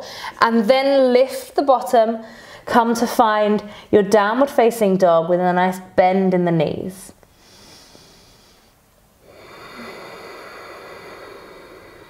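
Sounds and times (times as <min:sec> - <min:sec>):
person breathing: 0:02.2 - 0:02.7, 0:07.3 - 0:12.0.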